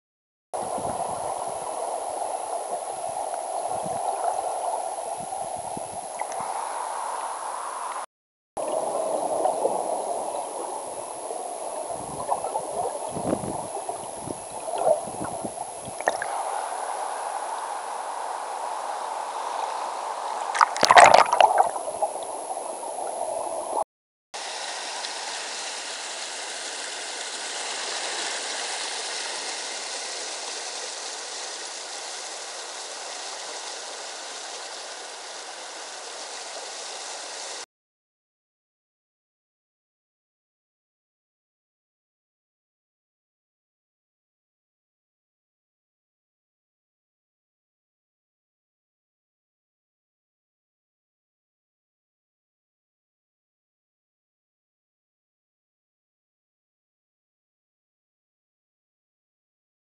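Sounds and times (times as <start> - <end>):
water rushing: 0.6 - 23.8, 24.4 - 37.7.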